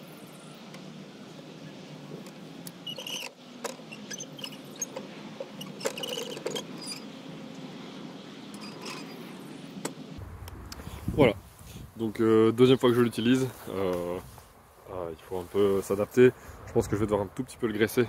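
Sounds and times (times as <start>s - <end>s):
sliding carriage squeaks: 1.6s - 9.9s.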